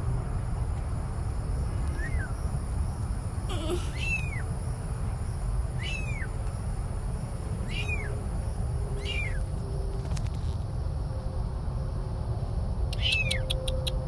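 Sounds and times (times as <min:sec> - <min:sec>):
steady low rumble: 0:00.0 - 0:14.0
kittens mewing: 0:03.5 - 0:04.4.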